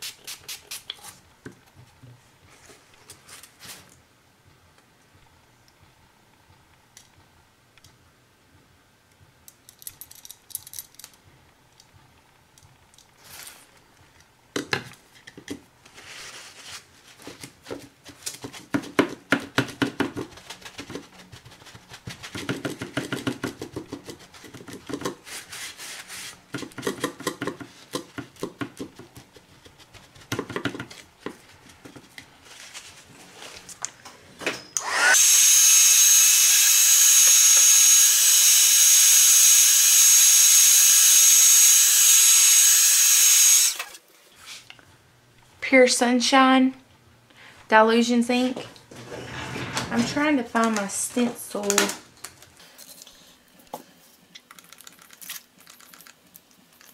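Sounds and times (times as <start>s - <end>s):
scraping and tapping on cardboard: 17.2s - 25.3s, 26.5s - 32.2s
heat tool blowing with whine: 34.6s - 43.9s.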